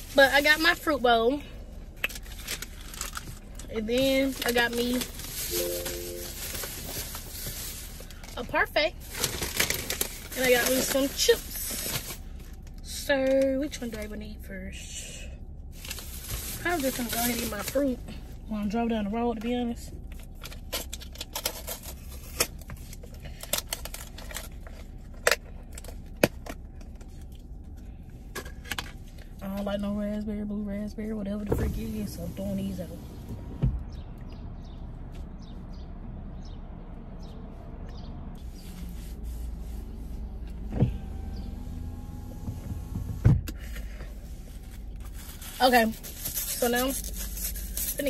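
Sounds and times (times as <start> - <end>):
low hum inside car: 0.0 - 48.0
plastic packaging crinkling: 2.0 - 3.6, 4.2 - 12.4.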